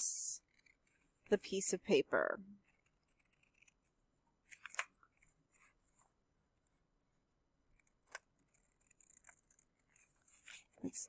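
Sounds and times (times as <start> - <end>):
scissors cutting paper: 2.6 - 3.8, 7.8 - 11.0.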